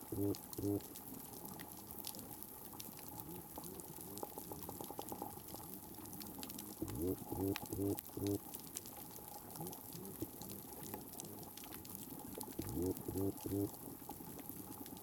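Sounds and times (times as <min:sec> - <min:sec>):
low bubbling pulses: 0:00.0 - 0:00.8, 0:06.6 - 0:08.4, 0:10.0 - 0:13.9
snapping shrimp clicks underwater: 0:00.0 - 0:15.0.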